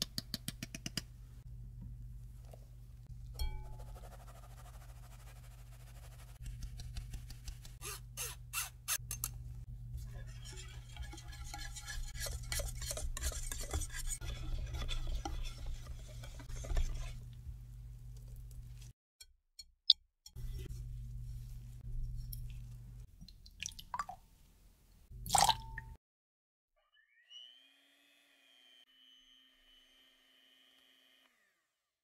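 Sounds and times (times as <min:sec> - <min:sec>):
whisk clinking against glass bowl: 0:10.3 - 0:17.1.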